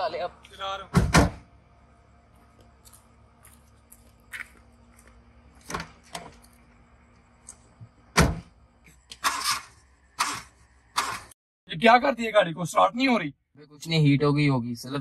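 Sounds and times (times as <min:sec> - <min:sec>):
car door shutting thud: 0:00.9 - 0:01.4, 0:08.1 - 0:08.5.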